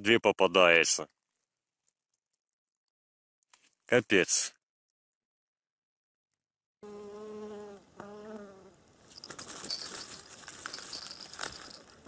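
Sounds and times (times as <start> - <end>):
flying insect buzzing: 6.8 - 8.7
handling noise: 9.1 - 12.0.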